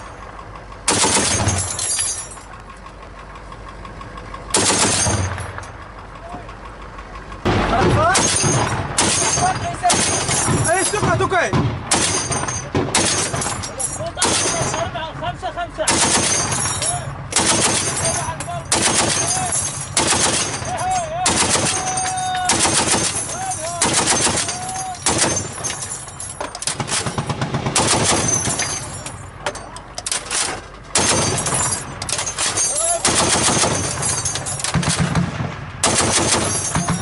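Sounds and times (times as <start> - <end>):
automatic gunfire bursts: 0.9 - 1.5, 4.6 - 5.2, 15.9 - 16.5, 17.4 - 18.0, 18.7 - 19.4, 20.0 - 20.6, 21.3 - 21.9, 22.5 - 23.2, 23.8 - 25.5, 26.7 - 28.5, 33.0 - 34.0, 34.7 - 37.0.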